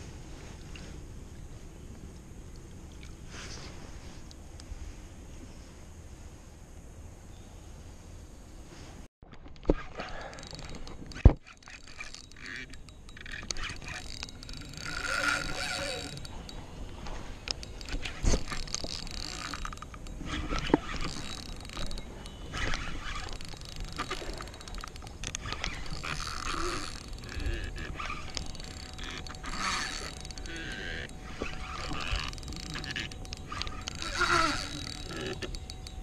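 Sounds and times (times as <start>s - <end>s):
spinning reel cranking: 9.6s - 36.0s.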